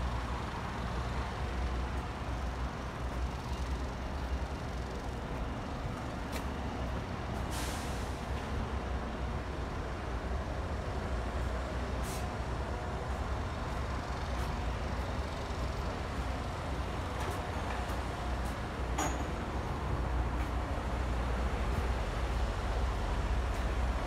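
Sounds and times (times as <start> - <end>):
large vehicles idling: 0.0 - 24.0
air brake hiss: 7.4 - 8.3, 12.0 - 12.3.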